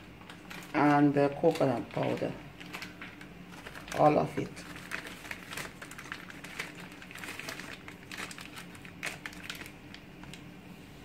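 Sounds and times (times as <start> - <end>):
plastic sachet crinkling: 0.0 - 10.5.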